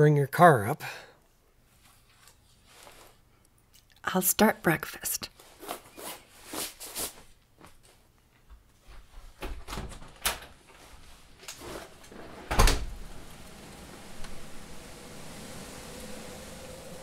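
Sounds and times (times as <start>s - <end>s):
door shutting with thud: 9.4s - 10.6s, 11.6s - 13.5s
steady hiss: 10.7s - 17.0s.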